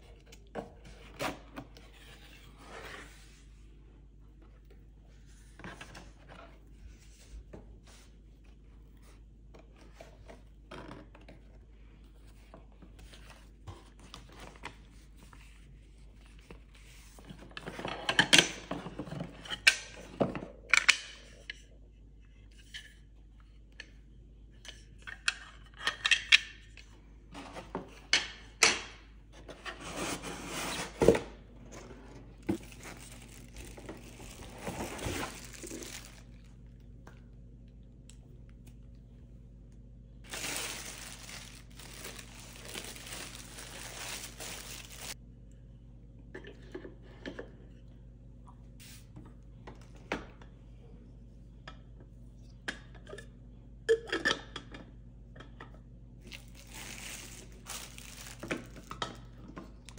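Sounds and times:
rubbing and scraping of packaging: 29.4 - 36.5, 40.2 - 45.2, 56.2 - 59.0
plastic rustling: 32.3 - 36.8, 40.2 - 45.2, 56.2 - 59.9.

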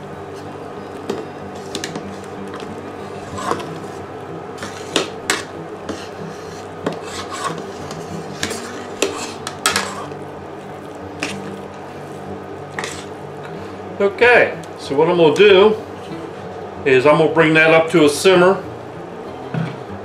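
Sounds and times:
steady low hum: 0.0 - 20.0
metal spoon scraping pot: 3.1 - 4.0, 4.6 - 10.2, 12.8 - 13.1.

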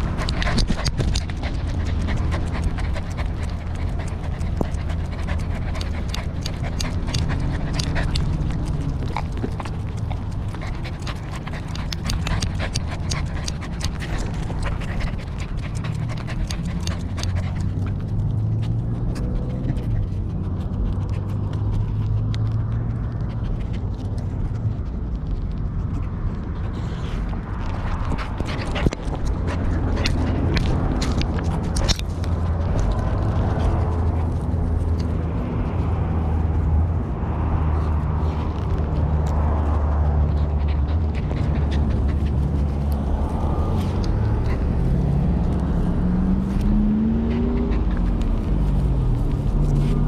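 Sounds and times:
dog panting: 0.0 - 50.0
low rumble: 19.4 - 50.0.

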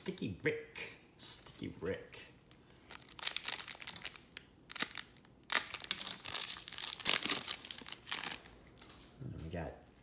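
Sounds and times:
card wrapper crinkling and rustling: 2.8 - 9.1.

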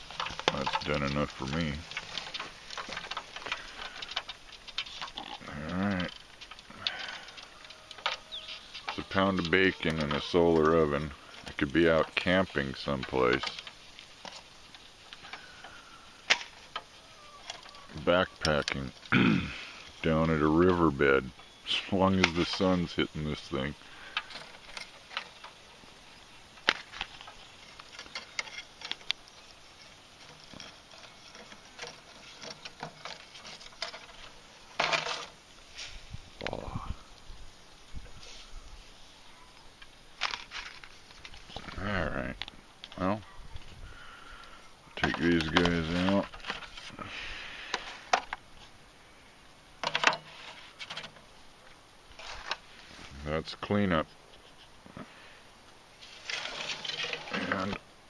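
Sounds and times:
foil rustling: 0.0 - 41.9, 43.6 - 48.8, 54.2 - 57.8.

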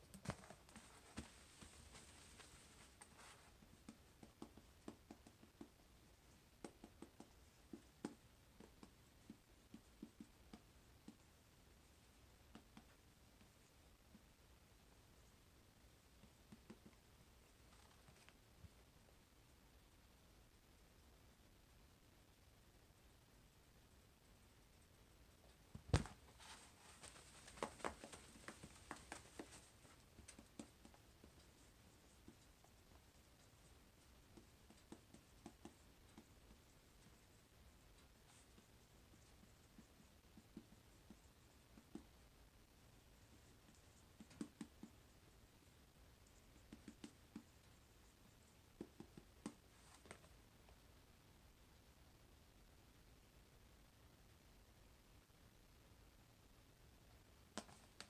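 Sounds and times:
light scuffs and taps: 0.1 - 4.0, 25.7 - 31.0
marker writing on whiteboard: 26.0 - 42.1.

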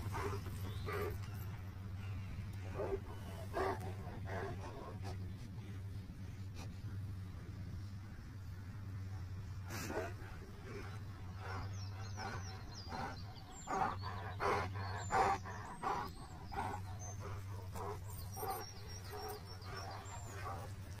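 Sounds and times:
birds chirping: 0.0 - 21.0
dogs play barking and growling: 0.0 - 21.0.

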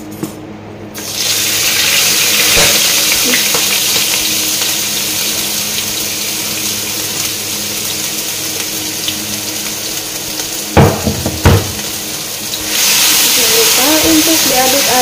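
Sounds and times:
food sizzling in oil: 1.0 - 15.0
loud knocks: 10.8 - 11.8.

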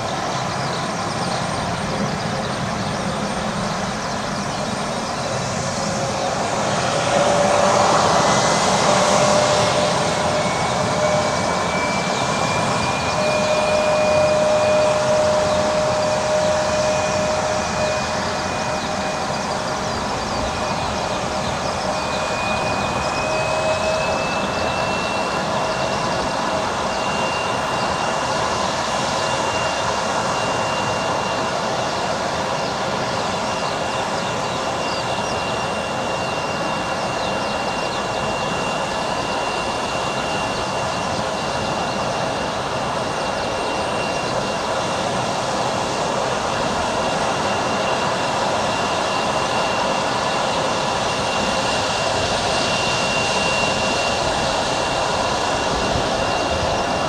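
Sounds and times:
distant jet engines rushing: 0.0 - 57.0
faint jet engine whine: 0.0 - 57.0.

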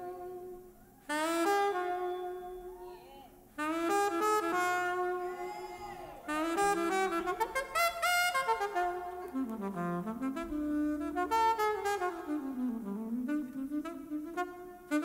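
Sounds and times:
saxophone playing solo: 0.0 - 15.0.

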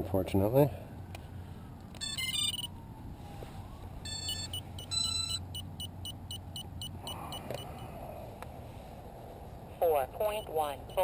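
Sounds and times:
high electronic beeps: 4.1 - 7.8.

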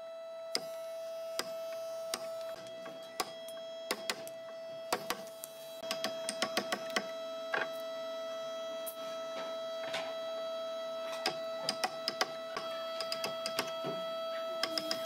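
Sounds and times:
woodworking machine whining: 0.0 - 15.0
sharp clicks and knocks: 1.4 - 7.7, 11.1 - 14.0.

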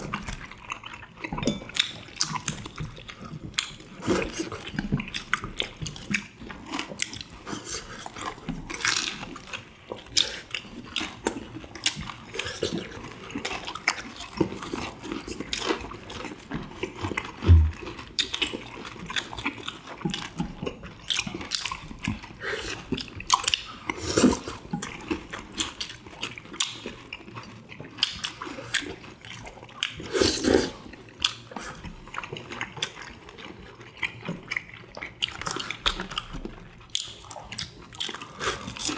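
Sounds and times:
wet chewing and slurping: 0.0 - 38.9
low thump: 17.4 - 17.9.

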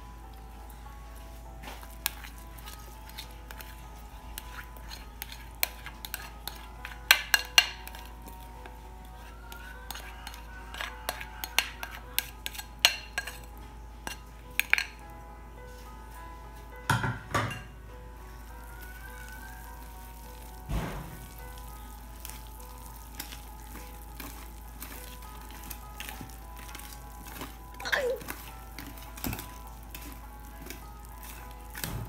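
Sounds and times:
background music: 0.0 - 32.0
whisk clinking glass bowl: 1.7 - 15.0, 22.2 - 32.0.

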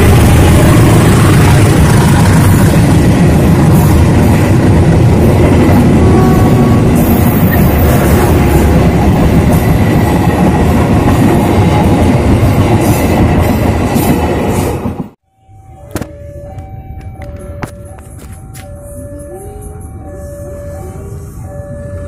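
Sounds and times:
train wheels rumbling on rails: 0.0 - 15.2.

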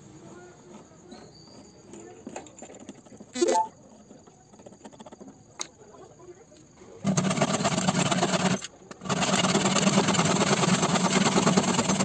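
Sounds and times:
pencil scratching on wood: 0.2 - 5.4.

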